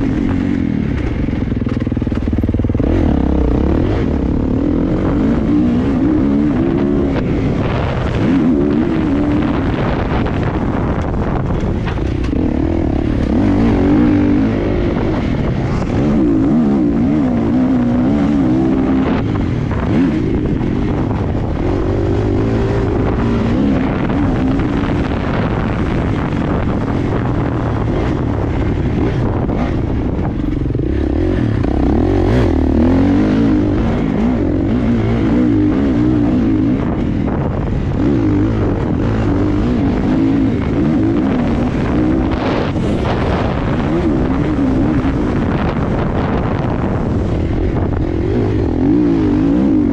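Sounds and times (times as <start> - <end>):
motocross bike engine revving: 0.0 - 49.9.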